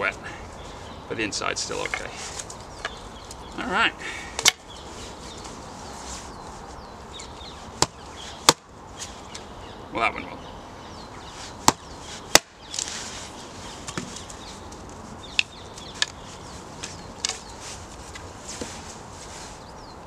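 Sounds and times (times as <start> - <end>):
axe chopping wood: 4.4 - 4.6, 7.8 - 8.7, 11.6 - 12.9.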